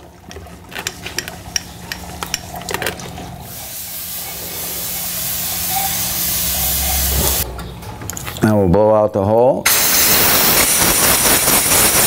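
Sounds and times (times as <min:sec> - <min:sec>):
hiss: 0:03.5 - 0:07.4, 0:09.7 - 0:12.0.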